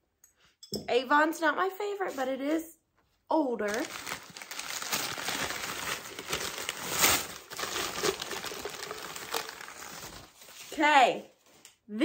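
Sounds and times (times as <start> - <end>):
wrapping paper crinkling: 3.6 - 11.6.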